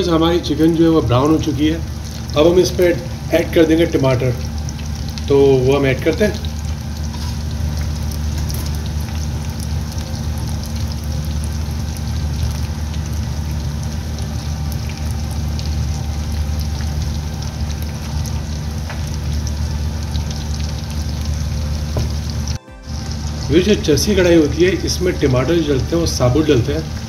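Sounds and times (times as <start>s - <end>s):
chicken sizzling in hot oil: 0.0s - 27.0s
low hum: 6.4s - 27.0s.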